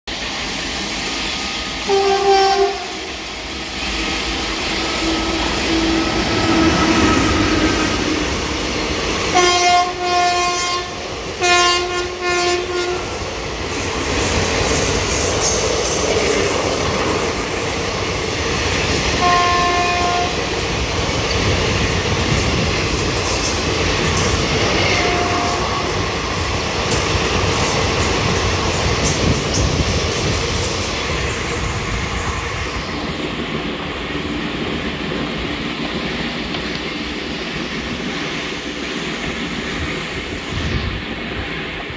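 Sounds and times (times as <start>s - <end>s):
train wheels clattering over rails: 0.3s - 41.9s
train horn blasts: 1.8s - 3.1s, 9.3s - 13.2s, 19.2s - 20.4s, 24.8s - 26.2s.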